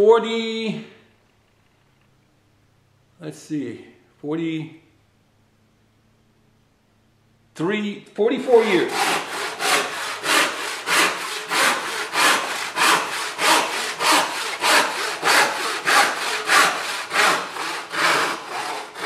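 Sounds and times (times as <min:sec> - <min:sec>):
handsaw rasping through wood: 0:08.4 - 0:19.0.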